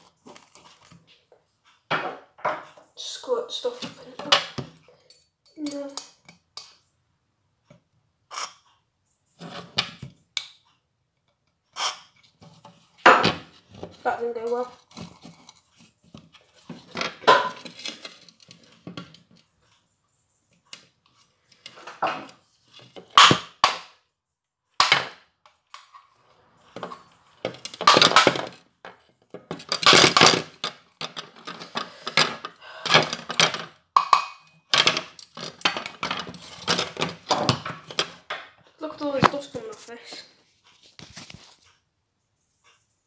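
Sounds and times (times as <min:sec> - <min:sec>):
plastic and metal parts clattering: 0:12.3 - 0:19.8, 0:26.7 - 0:38.4
scraping rasps: 0:29.4 - 0:33.7.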